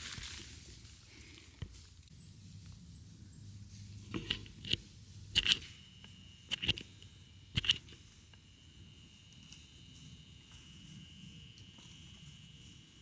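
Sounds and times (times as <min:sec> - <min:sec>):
footsteps crunching dry leaves: 0:00.0 - 0:02.0.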